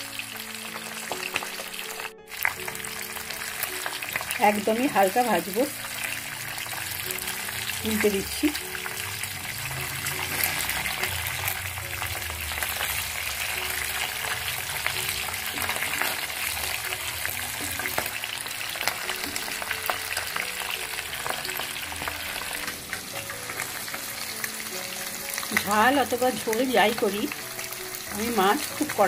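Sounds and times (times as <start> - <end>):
fish sizzling in hot oil: 0.0 - 29.0.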